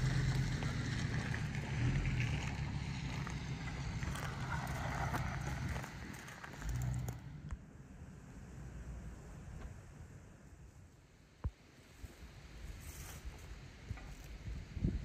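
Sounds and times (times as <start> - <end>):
vehicle engine hum: 0.0 - 15.0
wind on microphone: 12.7 - 15.0.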